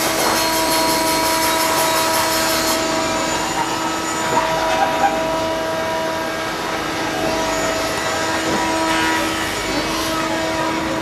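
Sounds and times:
constant tones: 0.0s - 11.0s
workshop machinery humming: 0.0s - 11.0s.

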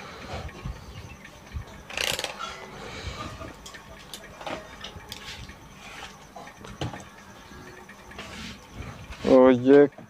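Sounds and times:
multimeter and leads clicking: 3.4s - 8.2s.

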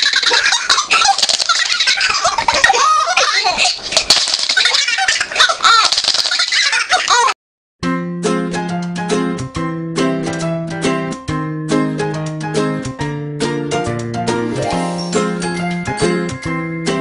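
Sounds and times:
baby laughing: 0.0s - 7.4s.

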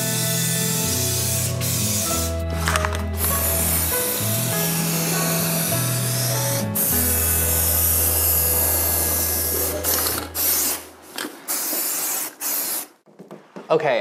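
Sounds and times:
background music with low notes: 0.0s - 11.0s
spray paint can hissing: 0.0s - 13.0s.

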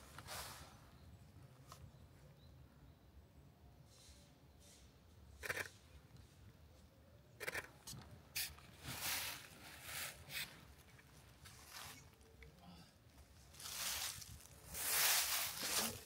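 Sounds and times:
footsteps crunching on dry path: 13.5s - 16.0s.

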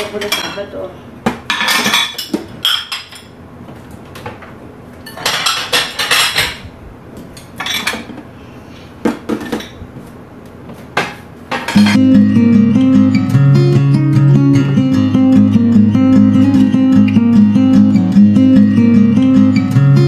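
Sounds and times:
dishes and glassware clinking: 0.0s - 0.8s, 1.4s - 3.4s, 5.0s - 6.6s, 7.4s - 8.2s, 11.5s - 12.0s
guitar music: 11.8s - 20.0s.

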